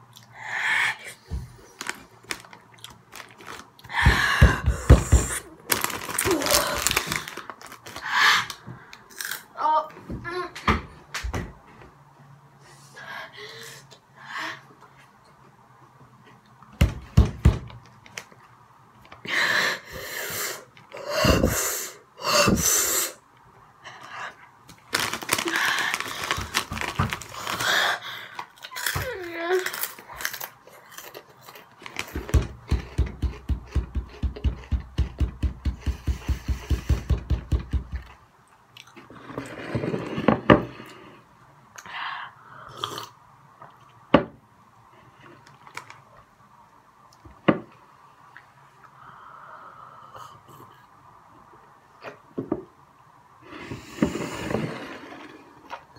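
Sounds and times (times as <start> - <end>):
boy gasping and hissing breaths: 3.9 - 5.5, 19.2 - 23.2
rapid even thumps: 32.1 - 38.2.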